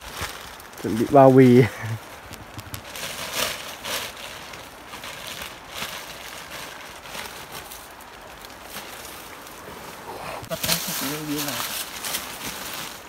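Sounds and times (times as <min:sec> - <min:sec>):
nylon sack rustling in leaves: 0:00.0 - 0:13.0.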